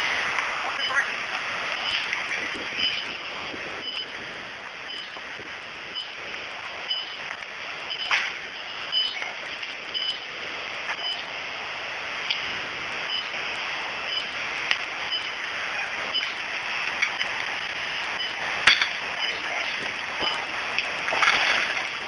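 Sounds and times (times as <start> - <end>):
fire rushing: 0.0 - 22.0
faint high beep: 2.8 - 3.2, 4.9 - 5.2, 19.2 - 20.4
fire pops and cracks: 18.6 - 22.0.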